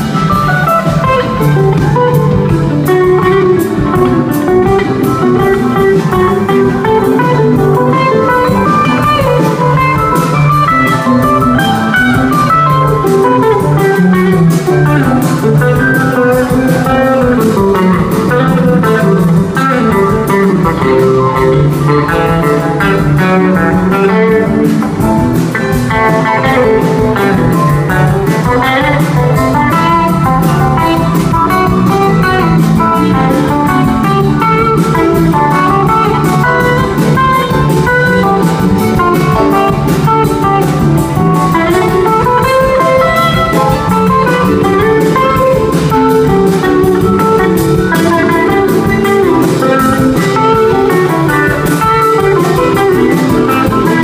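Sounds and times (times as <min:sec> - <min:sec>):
rock band playing: 0:00.0 - 0:54.0.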